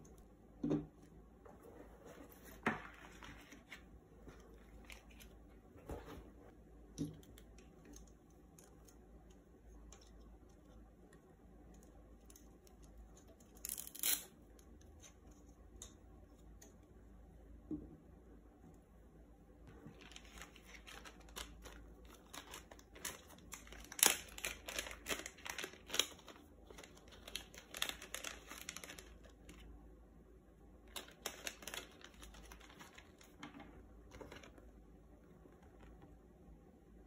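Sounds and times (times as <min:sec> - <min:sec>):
plastic bag crinkling: 0:19.7 - 0:29.6, 0:30.9 - 0:34.6.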